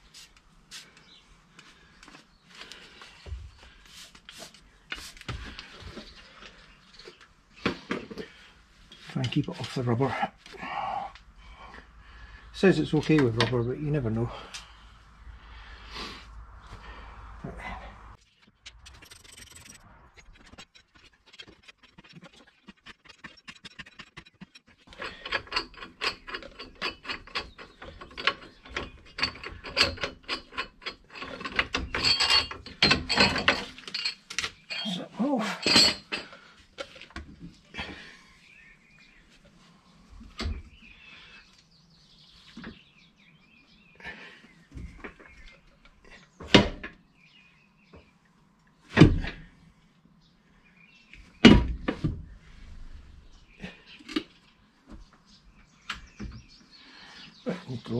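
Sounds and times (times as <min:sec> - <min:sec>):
tools and parts knocking: 0:13.1 - 0:13.6, 0:21.6 - 0:34.8, 0:35.6 - 0:37.3.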